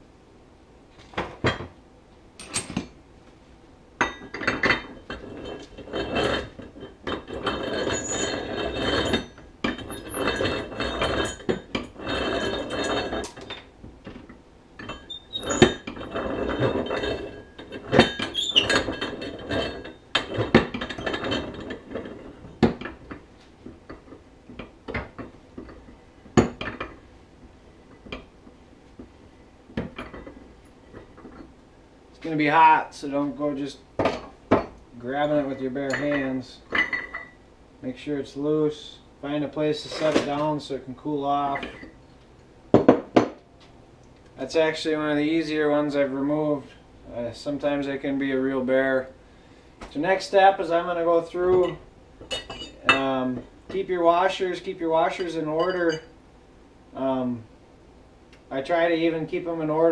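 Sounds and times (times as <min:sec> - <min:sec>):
metal tools clinking and scraping: 0:02.4 - 0:03.0, 0:04.0 - 0:23.2, 0:29.8 - 0:31.5, 0:34.0 - 0:37.4, 0:39.7 - 0:40.7, 0:41.3 - 0:42.0, 0:50.6 - 0:56.2
rattling grinding noise: 0:04.2 - 0:23.2.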